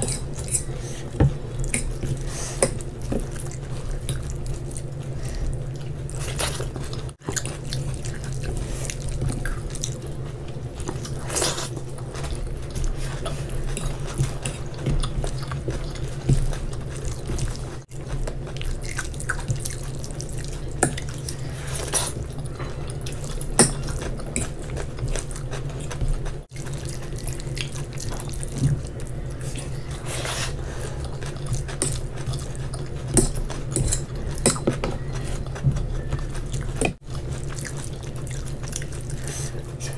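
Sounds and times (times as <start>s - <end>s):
steady low hum: 0.0s - 39.9s
wet chewing and smacking: 0.0s - 39.9s.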